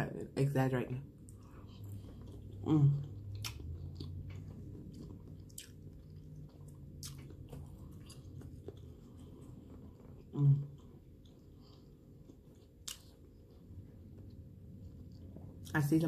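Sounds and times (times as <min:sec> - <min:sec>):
wet chewing clicks and smacks: 0:01.2 - 0:15.7.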